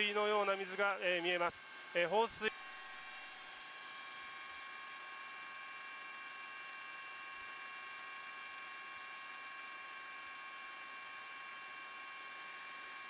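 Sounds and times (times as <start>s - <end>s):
helicopter turbine whine: 0.0s - 6.0s.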